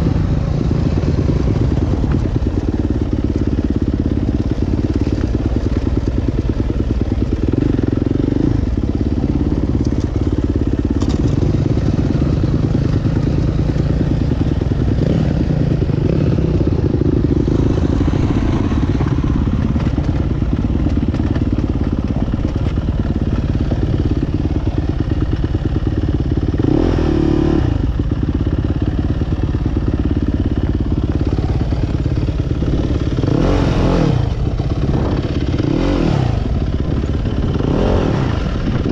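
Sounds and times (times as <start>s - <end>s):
dirt bike engine revving: 7.0s - 22.3s, 26.6s - 27.9s, 31.2s - 38.9s.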